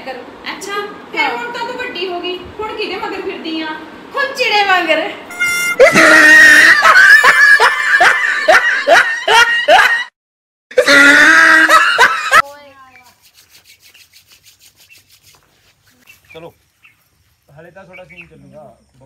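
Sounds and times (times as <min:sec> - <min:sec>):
women laughing hard: 0:05.8 - 0:12.4
insects chirping: 0:12.6 - 0:19.0.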